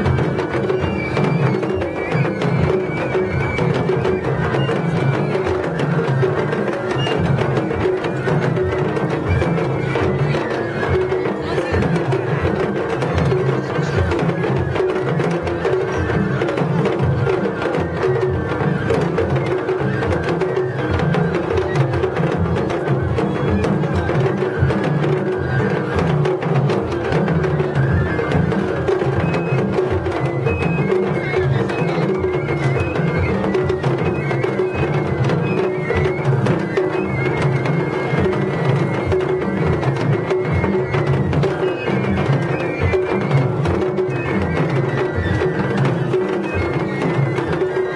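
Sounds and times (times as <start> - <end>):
high bamboo flute: 0.0 - 47.9
taiko drums beating: 0.0 - 47.9.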